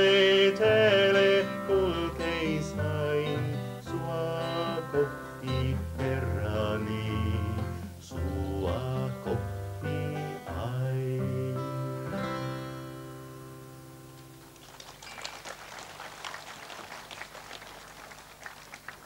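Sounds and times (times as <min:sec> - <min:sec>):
acoustic guitar chords ringing: 0:00.0 - 0:14.5
audience applauding: 0:14.2 - 0:19.0.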